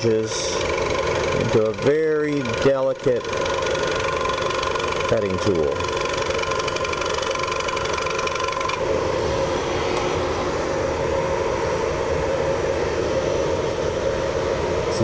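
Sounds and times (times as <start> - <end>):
wood lathe motor running: 0.0 - 9.0.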